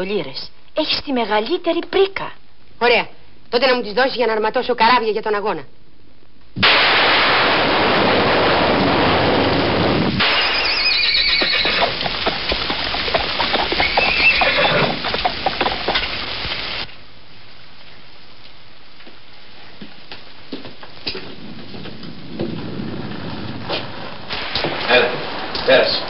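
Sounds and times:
thunder rumble: 0:06.6 - 0:16.9, 0:20.4 - 0:26.0
heavy rain: 0:06.6 - 0:26.0
horse whinnying: 0:10.3 - 0:16.0
hooves clopping: 0:10.5 - 0:16.9, 0:18.4 - 0:26.0.

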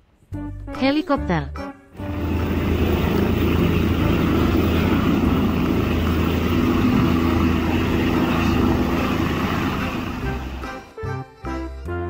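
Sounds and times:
helicopter rotor and engine: 0:02.0 - 0:10.9.

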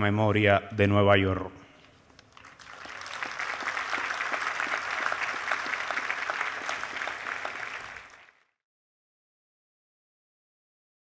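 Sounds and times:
crowd applauding: 0:02.2 - 0:08.5.

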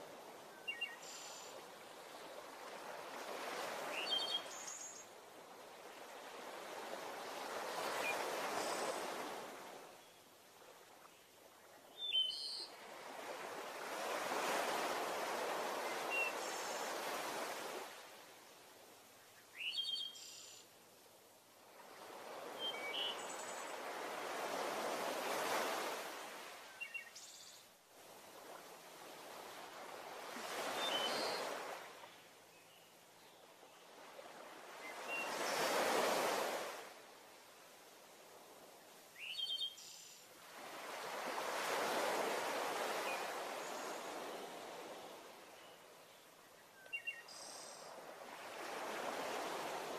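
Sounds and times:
waves washing in: 0:00.0 - 0:10.0, 0:12.7 - 0:18.4, 0:21.7 - 0:26.9, 0:27.9 - 0:32.2, 0:34.0 - 0:39.2, 0:40.0 - 0:45.6, 0:47.6 - 0:49.9.

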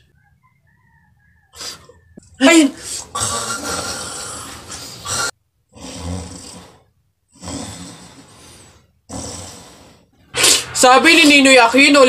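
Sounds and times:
acted snoring: 0:02.8 - 0:10.7.

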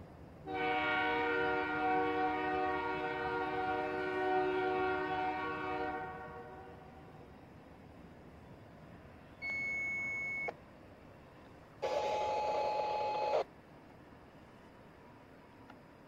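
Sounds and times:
train horn blasts: 0:00.4 - 0:06.9.

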